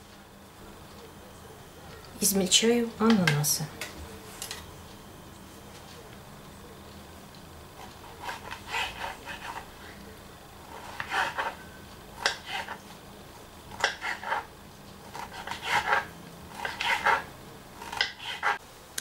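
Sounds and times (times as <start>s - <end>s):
knife chopping on wooden board: 17.8s - 18.6s.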